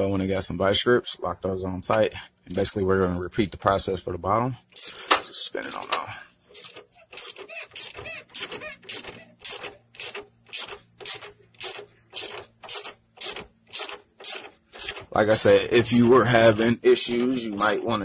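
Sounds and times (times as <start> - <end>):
ratchet wrench clicking: 4.7 - 5.9, 6.5 - 15.1.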